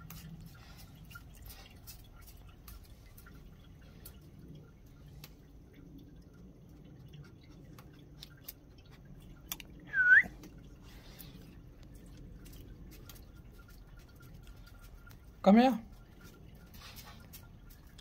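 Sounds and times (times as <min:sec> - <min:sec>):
short whistle: 0:09.9 - 0:10.4.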